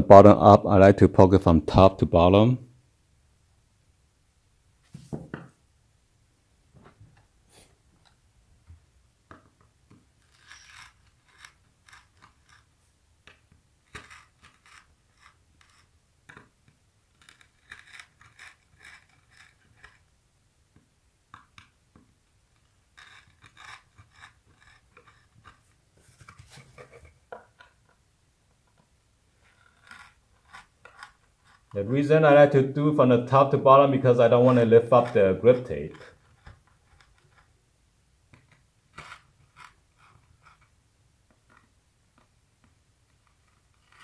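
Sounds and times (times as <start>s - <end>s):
screwdriver scraping through grip tape: 10.0s - 16.5s, 17.1s - 20.1s, 22.5s - 27.7s, 29.4s - 31.8s, 34.4s - 37.5s, 38.4s - 40.8s, 43.1s - 44.0s.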